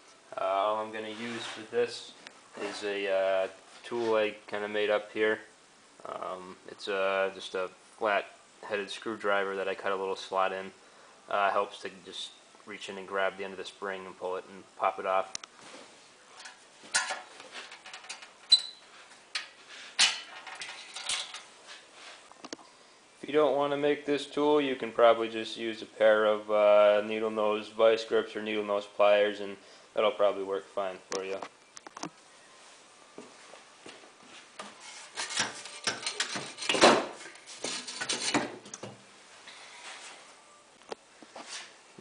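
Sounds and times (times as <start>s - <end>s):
metal rattles: 16.4s - 18.6s, 19.4s - 21.5s
metal scraping and knocking: 16.4s - 18.7s, 19.3s - 21.5s, 34.6s - 38.9s
screwdriver scraping metal springs: 34.8s - 36.8s.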